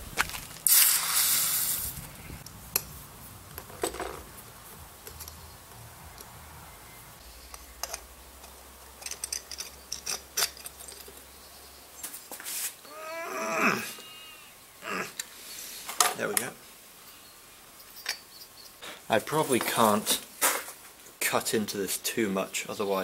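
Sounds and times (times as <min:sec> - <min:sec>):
hot metal hissing in water: 0:00.6 - 0:02.0
metal parts clicking and knocking: 0:07.4 - 0:11.2.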